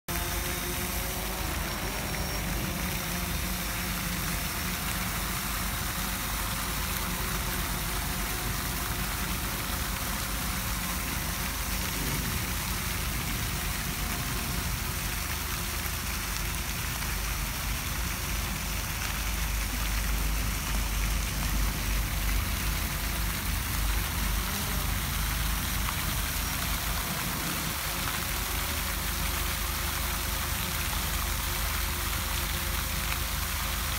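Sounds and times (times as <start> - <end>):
fountain jets splashing: 0.1 - 33.9
low rumble: 8.3 - 28.2.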